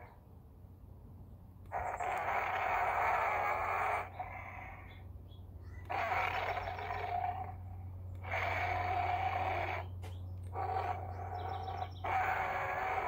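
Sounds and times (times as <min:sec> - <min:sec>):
recorded monster roars from toy speaker: 0:01.7 - 0:04.7, 0:05.8 - 0:07.6, 0:08.2 - 0:09.9, 0:10.5 - 0:13.0.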